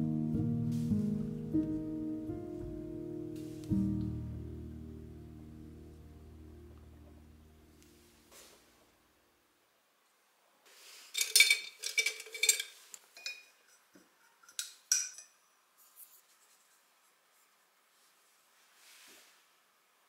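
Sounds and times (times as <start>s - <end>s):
paintbrush clinking in glass jar: 11.2s - 15.4s.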